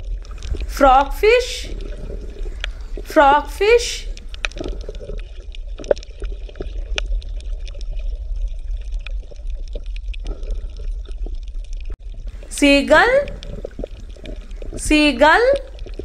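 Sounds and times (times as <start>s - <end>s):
low rumble: 0.0s - 5.4s, 12.1s - 14.9s
water bubbling and gurgling: 0.0s - 16.0s
small pops and clicks: 1.8s - 2.9s, 4.1s - 7.8s.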